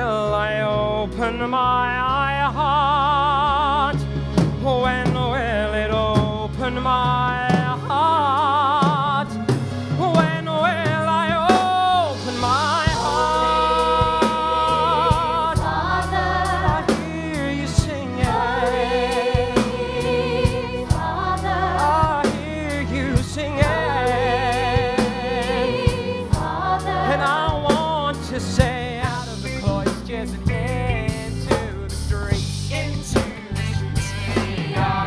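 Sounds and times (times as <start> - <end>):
male soloist singing: 0.0 - 4.0, 4.6 - 20.1, 21.7 - 26.2, 27.0 - 35.0
band with bass and drums: 3.4 - 35.0
choir singing: 11.5 - 28.3, 33.6 - 35.0.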